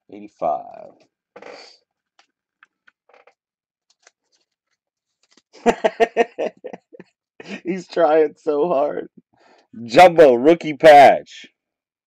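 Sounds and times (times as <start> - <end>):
cards rustling: 3.9 - 5.6.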